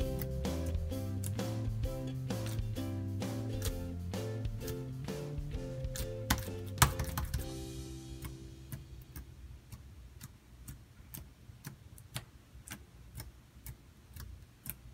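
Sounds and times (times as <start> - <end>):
background music: 0.0 - 9.2
fingers pressing sticky slime: 5.9 - 7.4, 8.2 - 14.9.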